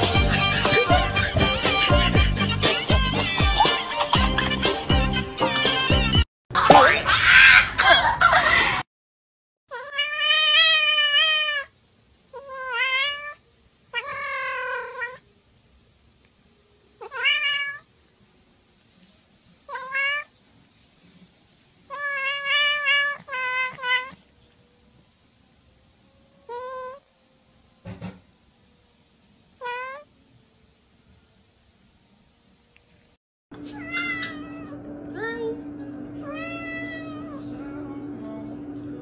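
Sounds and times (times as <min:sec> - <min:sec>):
cat meowing: 0:09.7 - 0:11.7, 0:12.3 - 0:15.2, 0:17.0 - 0:17.9, 0:19.7 - 0:20.3, 0:21.9 - 0:24.3, 0:26.4 - 0:27.1, 0:29.6 - 0:30.1, 0:33.6 - 0:34.8, 0:36.2 - 0:37.5.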